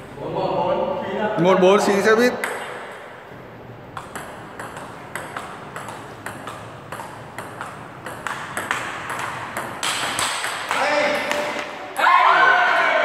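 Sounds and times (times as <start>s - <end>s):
table tennis ball clicks: 3.9s - 11.7s.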